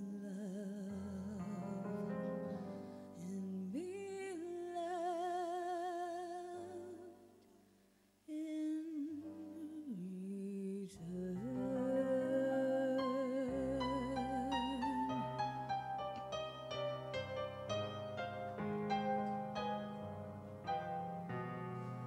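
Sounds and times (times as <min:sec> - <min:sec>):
woman singing a slow ballad: 0:00.0 - 0:07.3, 0:08.3 - 0:15.9
soft keyboard accompaniment: 0:11.4 - 0:22.0.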